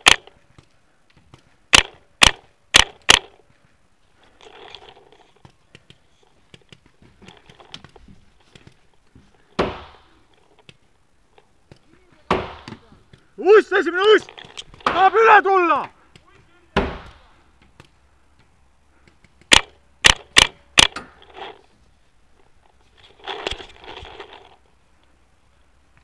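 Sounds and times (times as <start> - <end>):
paintball marker shots: 1.7 - 3.4, 9.6 - 10.2, 12.3 - 12.9, 19.2 - 21.1.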